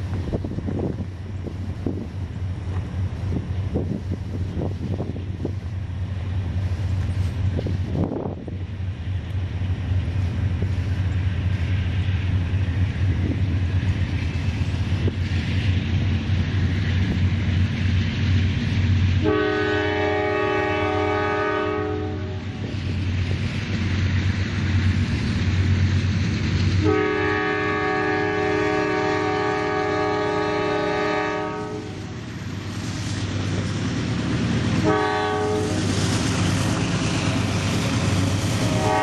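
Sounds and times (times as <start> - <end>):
diesel engine rumble: 0.0 - 39.0
locomotive air horn blast: 19.2 - 22.6, 26.8 - 32.2, 34.8 - 36.0, 38.6 - 39.0.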